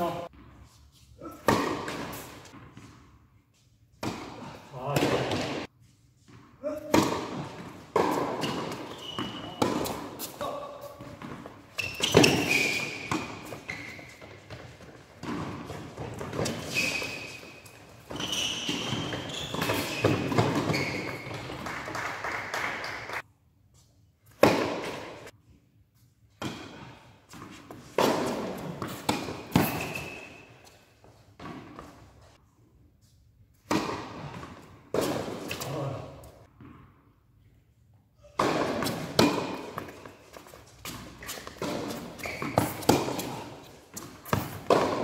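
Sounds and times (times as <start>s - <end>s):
racket striking ball: 1.3s - 2.2s, 6.8s - 14.6s, 24.4s - 25.2s, 28.0s - 30.4s, 38.4s - 45.0s
tennis ball bouncing: 1.4s - 3.0s, 6.3s - 21.6s, 24.4s - 25.2s, 27.4s - 30.3s, 38.4s - 45.0s
shoes squeaking on court: 7.2s - 21.7s, 26.8s - 32.3s, 38.2s - 45.0s.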